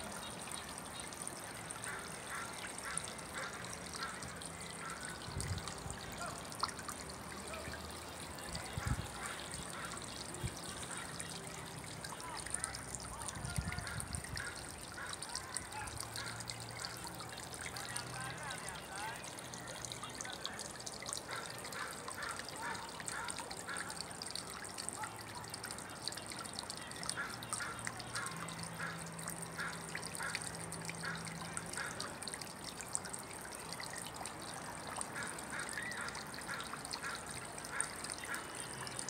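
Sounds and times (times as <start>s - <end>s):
fountain trickling: 0.0s - 39.0s.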